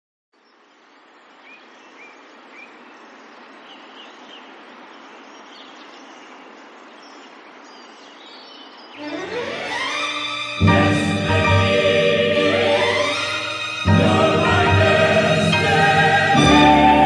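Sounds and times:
background noise: 0:00.3 - 0:17.0
small birds chirping: 0:00.4 - 0:09.1.

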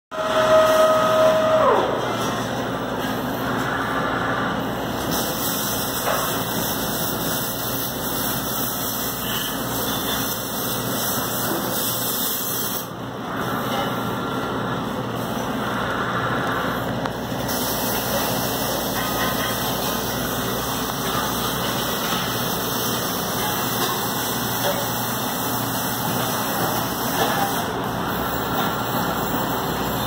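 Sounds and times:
welding arc: 0:04.7 - 0:13.0, 0:16.4 - 0:30.0.

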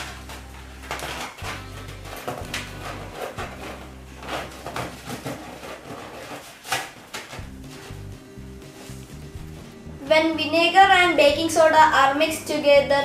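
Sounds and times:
rubbing of balloon rubber: 0:00.0 - 0:09.6.

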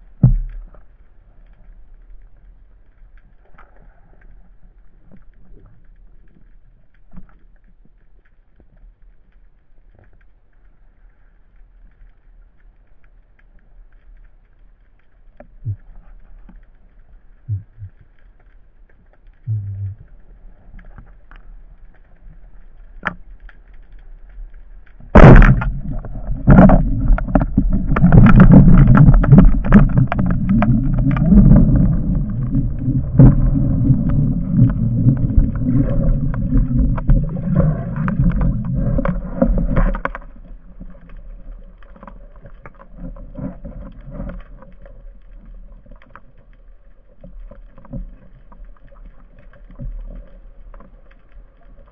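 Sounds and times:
soft knocks underwater: 0:00.0 - 0:01.8, 0:15.0 - 0:46.5
churning water: 0:25.0 - 0:41.0.

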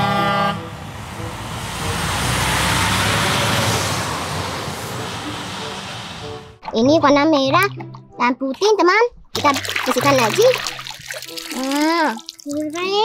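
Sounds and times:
truck driving past: 0:00.0 - 0:06.6
truck horn: 0:00.0 - 0:06.6.

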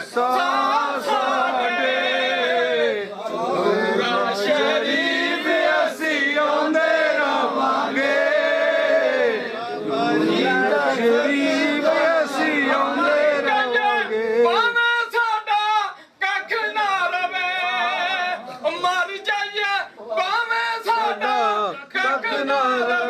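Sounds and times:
crowd of men singing: 0:00.0 - 0:14.6, 0:20.8 - 0:23.0.

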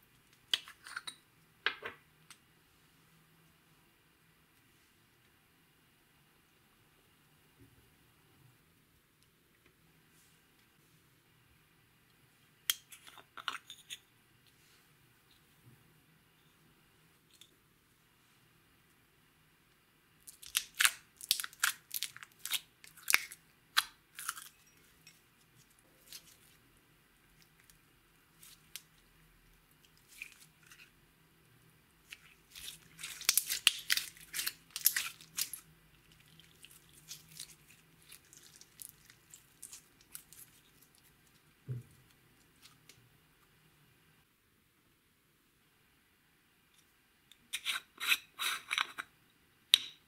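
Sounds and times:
slime crackling and popping: 0:20.3 - 0:24.6, 0:32.1 - 0:41.0.

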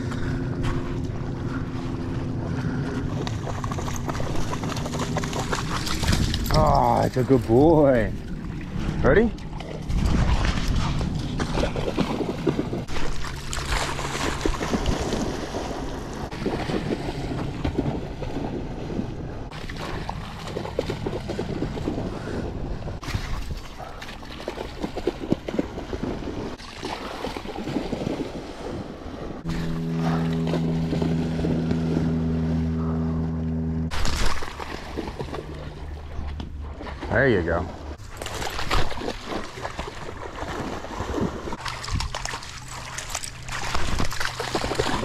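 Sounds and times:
steady low hum: 0:00.0 - 0:23.0, 0:28.0 - 0:38.0
water splashing and sloshing: 0:00.0 - 0:33.0, 0:33.9 - 0:45.0
wind on microphone: 0:08.0 - 0:12.9.

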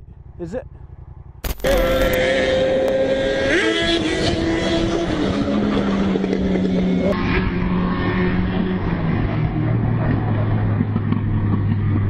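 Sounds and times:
motorcycle engine running: 0:00.0 - 0:12.0
wind noise: 0:03.2 - 0:07.1.

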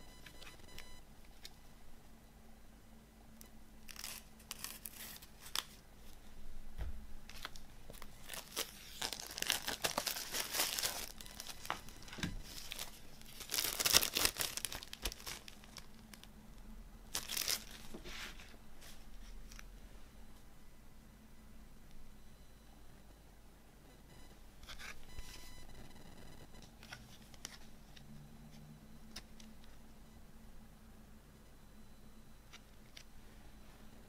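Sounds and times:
plastic wrap crinkling: 0:03.8 - 0:06.2, 0:07.2 - 0:16.3, 0:17.1 - 0:18.5
knife slitting plastic wrap: 0:03.9 - 0:05.8, 0:08.2 - 0:11.5, 0:12.5 - 0:15.9.

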